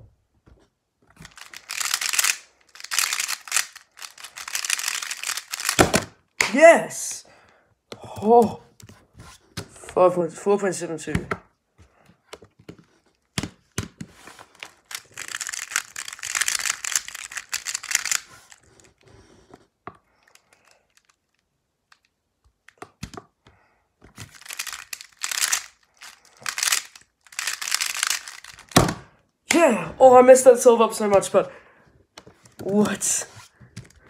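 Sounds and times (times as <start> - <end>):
plastic puzzle clacking: 1.1 - 6.5, 12.3 - 19.0, 20.2 - 31.5, 32.2 - 34.0.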